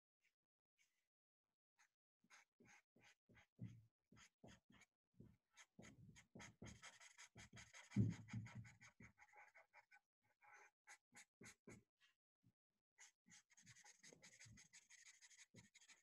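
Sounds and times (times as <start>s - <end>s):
marker scratching on paper: 5.6s - 11.8s, 13.0s - 16.0s.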